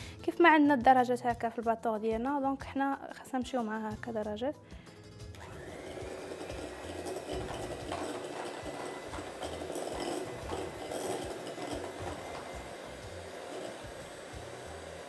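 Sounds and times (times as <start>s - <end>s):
electric hand mixer whipping cream: 5.0s - 15.0s.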